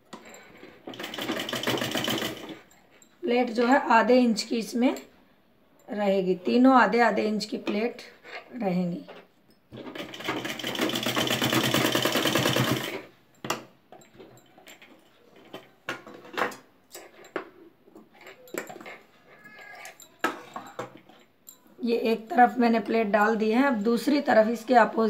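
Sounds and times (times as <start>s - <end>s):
sewing machine stitching: 0.1s - 2.6s, 9.7s - 13.1s.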